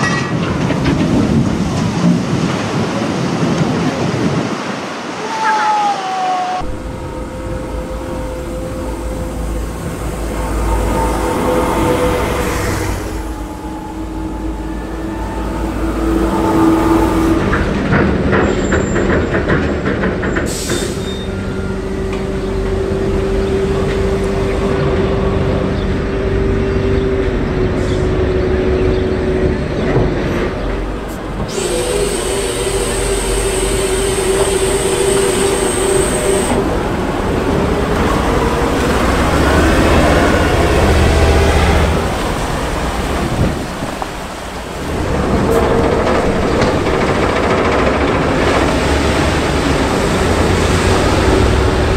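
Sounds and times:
diesel engines whining under load: 6.6 - 51.9.

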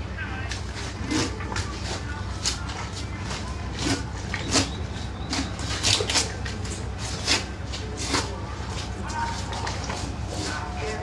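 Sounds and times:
steady low hum: 0.0 - 11.0
knife scraping fish fillet: 0.7 - 11.0.

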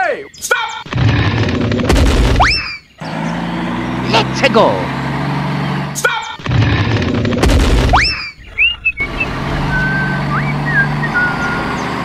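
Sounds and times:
loud rumbling burst: 0.9 - 2.5, 6.4 - 10.8
low motor hum: 0.9 - 12.0
sliding whistle-like tones: 7.9 - 11.7.

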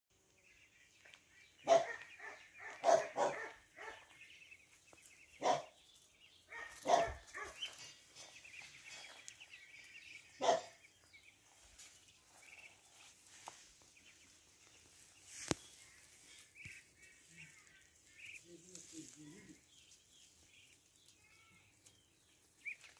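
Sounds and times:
ducklings peeping: 0.3 - 22.9
dog barking: 1.6 - 4.1, 5.4 - 5.8, 6.5 - 7.7, 10.4 - 10.8.

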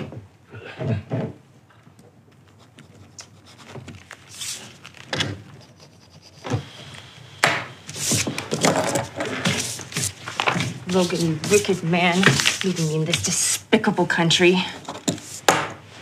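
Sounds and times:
paper rustling on table: 3.3 - 5.4, 7.9 - 13.6.

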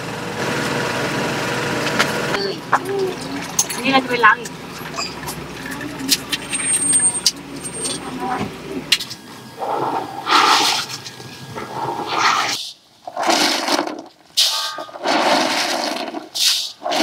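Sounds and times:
running hose: 9.6 - 17.0
water splashing in a plastic basin: 13.1 - 14.2, 14.8 - 17.0.

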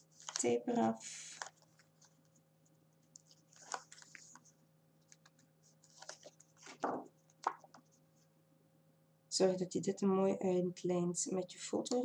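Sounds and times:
paper rustling: 0.0 - 0.6, 1.2 - 8.3.

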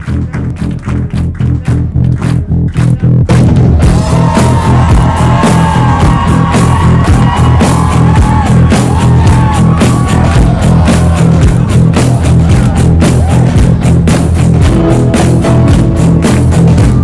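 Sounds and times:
heavy bass line: 0.0 - 17.0
steady drum beat: 0.0 - 17.0
sliding lead melody: 3.2 - 17.0.

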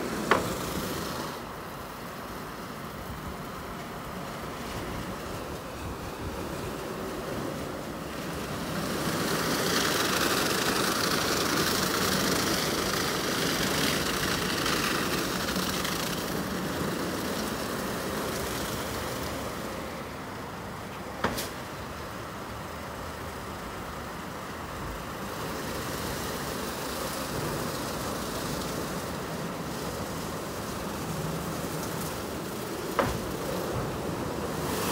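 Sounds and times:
car wash motors: 0.0 - 34.9
car wash brushes swishing: 4.8 - 20.0, 25.3 - 34.9
water spray: 8.2 - 20.0, 25.2 - 34.9.

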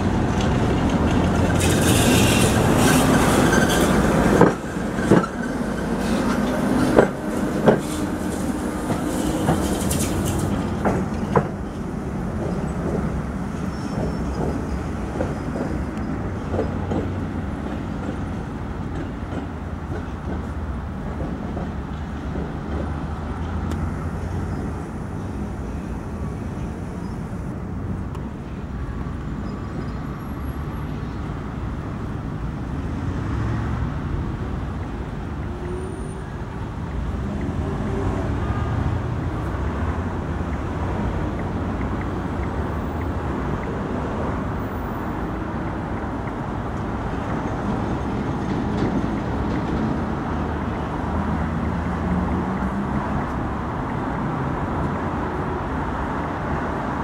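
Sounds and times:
tram rumbling: 0.0 - 57.0
tram wheels knocking over rail joints: 0.1 - 13.2, 14.0 - 23.2.

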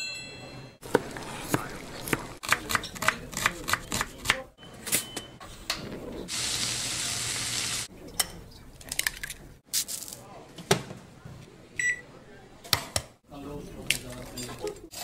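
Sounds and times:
knife chopping onion on board: 0.9 - 4.4
bacon sizzling in frying pan: 6.3 - 7.9.

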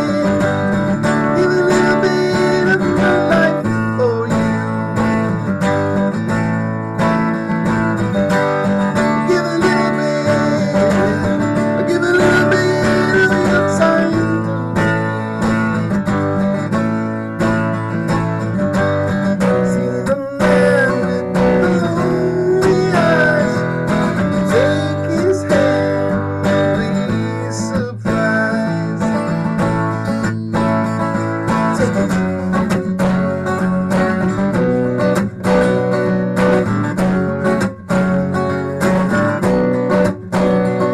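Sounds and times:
man singing: 0.0 - 5.5, 8.3 - 15.8, 19.0 - 35.7.

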